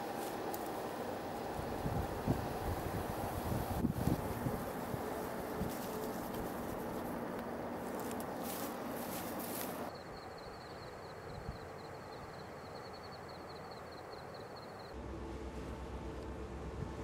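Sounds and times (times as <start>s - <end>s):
steady low rumble: 14.9s - 17.0s.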